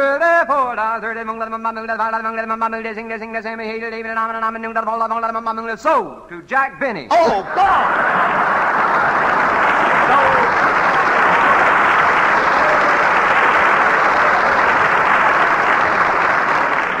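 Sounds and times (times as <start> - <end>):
audience laughing: 7.2 - 17.0
audience applauding: 7.5 - 17.0.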